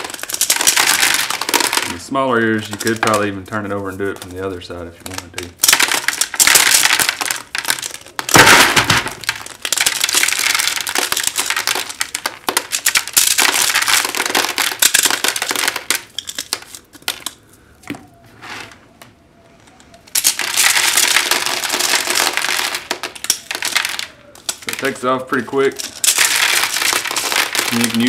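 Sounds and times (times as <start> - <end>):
kernels falling into bucket: 0.0 - 4.3, 5.0 - 17.4, 20.1 - 28.0
corn kernels crackling off cob: 0.0 - 17.9, 19.8 - 28.0.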